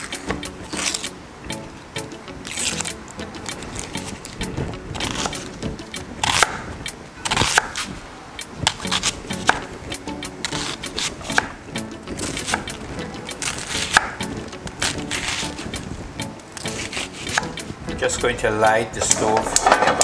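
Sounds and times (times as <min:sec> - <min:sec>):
knife slicing onion: 0:00.0 - 0:01.2, 0:02.4 - 0:08.0, 0:08.6 - 0:17.7
background music: 0:00.0 - 0:20.0.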